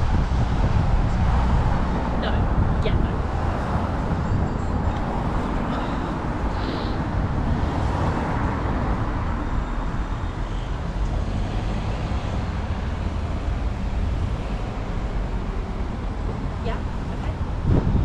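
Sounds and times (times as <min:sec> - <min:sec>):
road traffic noise: 0:00.0 - 0:18.0.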